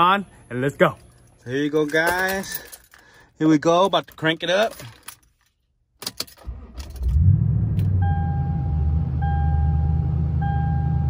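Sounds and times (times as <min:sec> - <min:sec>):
engine cranking and idling: 0:06.3 - 0:08.2
dashboard warning chime beeps: 0:08.0 - 0:11.0.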